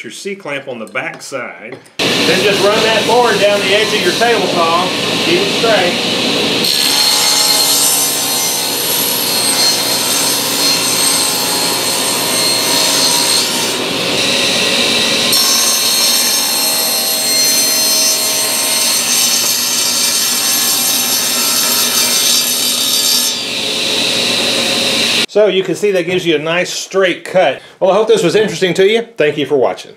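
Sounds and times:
saw blade cutting wood: 0:02.0 - 0:25.3
table saw motor whine: 0:02.0 - 0:25.3.

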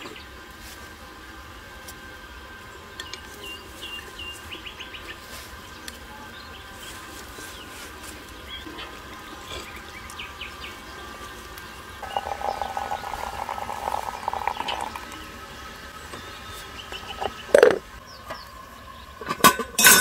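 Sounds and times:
small birds chirping: 0:08.4 - 0:18.5
water pouring into teapot: 0:11.9 - 0:15.9.

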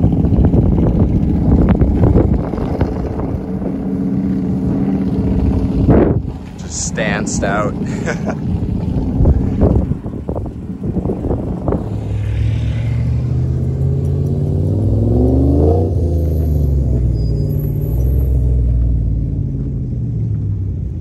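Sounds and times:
engine rumbling and revving: 0:00.0 - 0:21.0.

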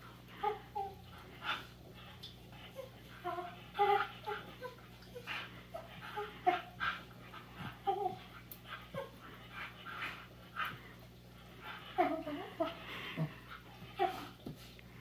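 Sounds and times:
puppy whining: 0:02.5 - 0:07.0, 0:07.6 - 0:09.2.

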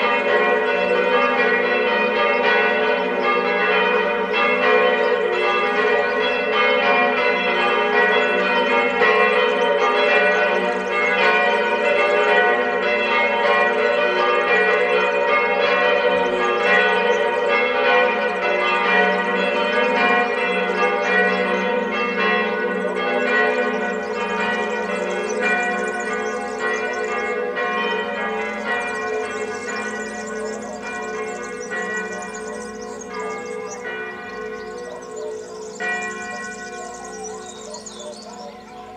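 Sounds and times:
church bells ringing: 0:00.0 - 0:38.9.

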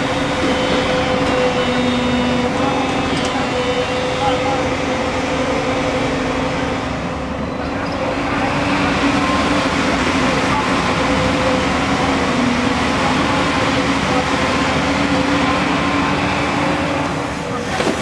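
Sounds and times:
excavator engine and hydraulics: 0:00.0 - 0:18.0.

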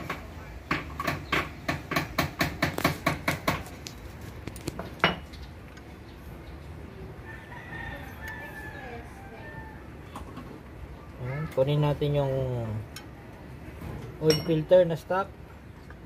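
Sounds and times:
rooster crowing: 0:07.2 - 0:10.1.

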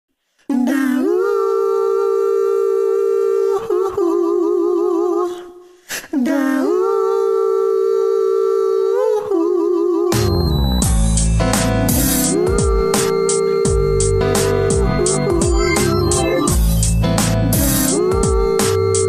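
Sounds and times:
person humming: 0:06.2 - 0:10.4, 0:11.9 - 0:16.6, 0:17.5 - 0:19.0.

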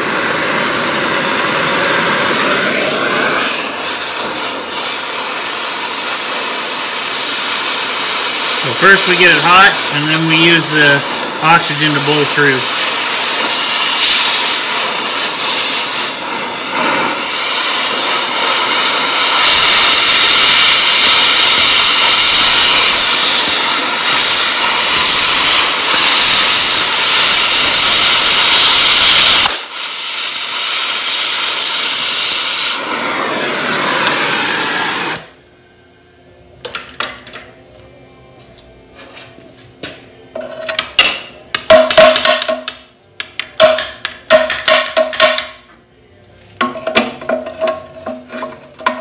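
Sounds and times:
cutting torch hissing: 0:00.0 - 0:35.4.

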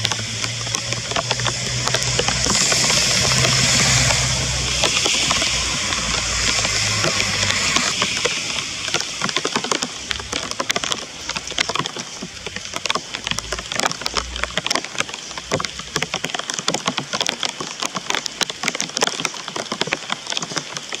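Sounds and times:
broad hiss and low rumble: 0:00.0 - 0:16.1
rain falling: 0:00.0 - 0:21.0
raindrops ticking on a surface: 0:00.0 - 0:21.0.

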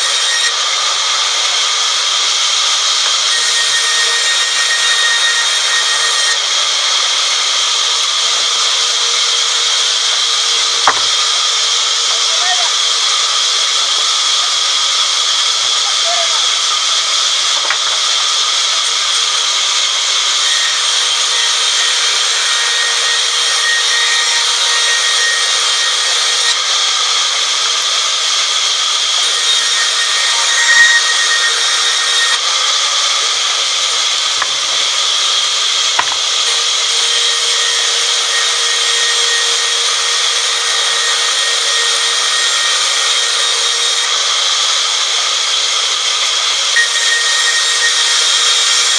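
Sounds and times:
band saw cutting log: 0:00.0 - 0:48.9.

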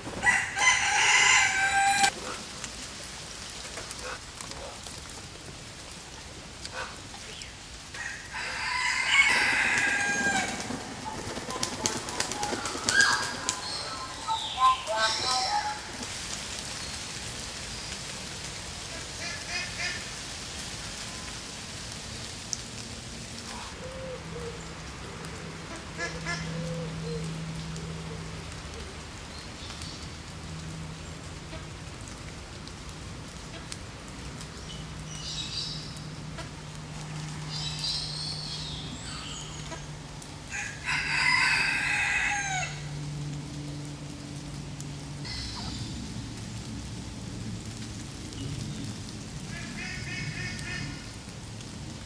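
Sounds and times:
rain on ground and leaves: 0:00.0 - 0:52.0
rooster crowing: 0:00.2 - 0:02.2, 0:07.9 - 0:11.0, 0:40.5 - 0:43.1.

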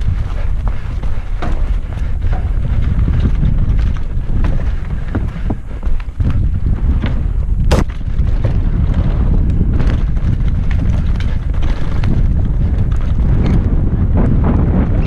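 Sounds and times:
bike clattering over rough ground: 0:00.0 - 0:15.0
wind rumbling on microphone: 0:00.0 - 0:15.0.

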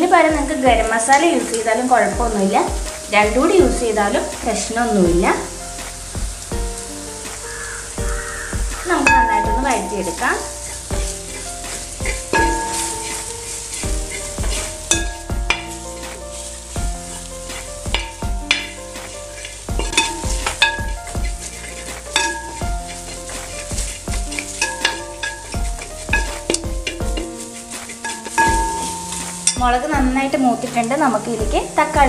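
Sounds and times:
food sizzling in oil: 0:00.0 - 0:32.0
spoon scraping metal pot: 0:19.4 - 0:29.6.

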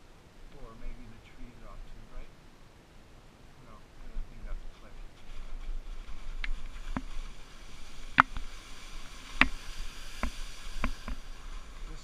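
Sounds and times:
skis sliding over slushy snow: 0:04.3 - 0:12.0
sharp ski clicks: 0:05.2 - 0:12.0.

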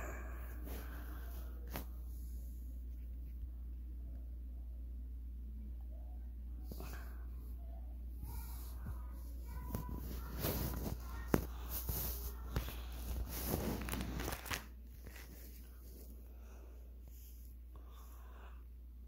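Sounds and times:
plastic binder pages crinkling: 0:09.5 - 0:16.2.

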